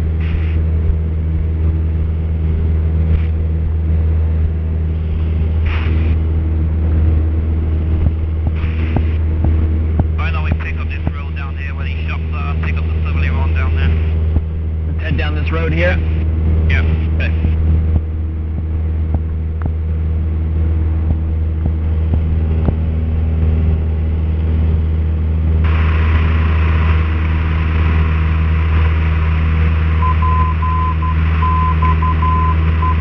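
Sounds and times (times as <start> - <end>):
aircraft engine droning: 0.0 - 33.0
radio hiss: 0.2 - 0.7, 4.9 - 6.2, 8.5 - 9.3, 10.0 - 17.7, 25.6 - 33.0
morse code beeps: 30.0 - 33.0.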